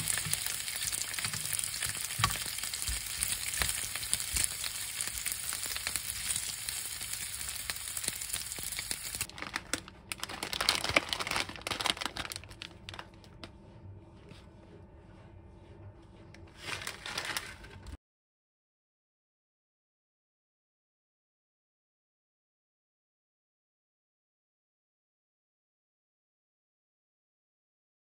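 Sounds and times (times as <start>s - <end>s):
meat sizzling in a frying pan: 0.0s - 9.3s
tongs turning meat: 0.0s - 9.3s
plastic packet crinkling: 0.0s - 13.2s, 16.6s - 18.0s.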